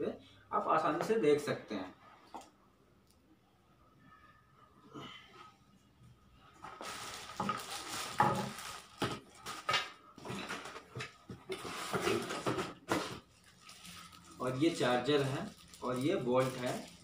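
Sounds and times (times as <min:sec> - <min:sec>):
packaging rustling and clattering: 0:06.6 - 0:17.0.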